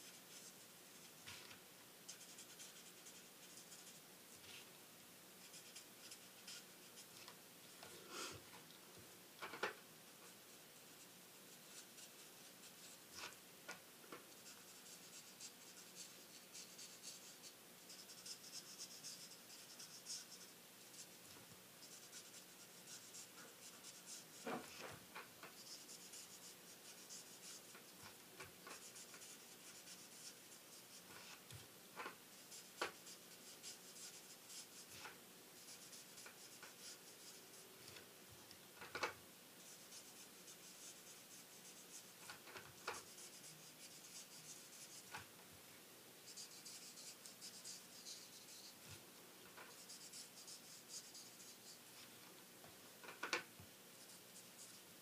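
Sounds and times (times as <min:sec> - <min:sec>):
marker scratching on cardstock: 0:02.1 - 0:04.5, 0:05.4 - 0:07.1, 0:11.0 - 0:13.4, 0:14.3 - 0:21.2, 0:21.8 - 0:24.8, 0:25.5 - 0:37.5, 0:39.6 - 0:45.3, 0:46.3 - 0:48.9, 0:49.6 - 0:51.9, 0:54.0 - 0:54.8.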